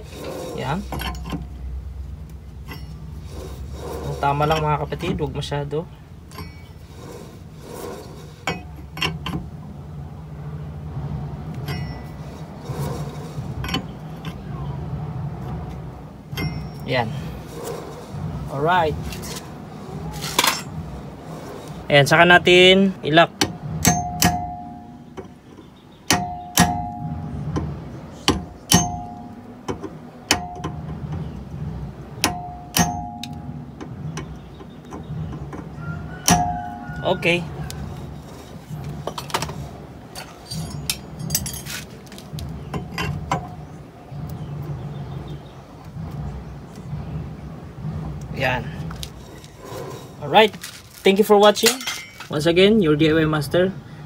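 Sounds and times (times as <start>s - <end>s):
low hum: 0.0s - 51.1s
hammer striking steel punch: 23.4s - 25.4s, 26.1s - 31.1s, 32.2s - 34.4s
wrench clinking on metal nut: 51.6s - 52.3s.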